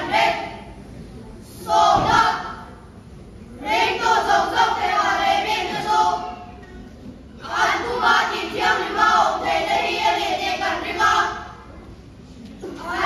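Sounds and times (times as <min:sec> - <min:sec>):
children's choir singing: 0:00.0 - 0:00.8, 0:01.5 - 0:02.9, 0:03.6 - 0:06.7, 0:07.4 - 0:11.6, 0:12.6 - 0:13.0.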